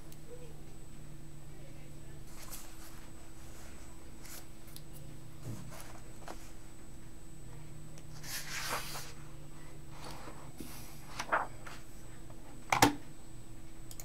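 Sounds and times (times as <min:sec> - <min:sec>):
electrical hum: 0:00.0 - 0:14.0
rustling handling noise: 0:05.4 - 0:06.8, 0:09.9 - 0:12.0.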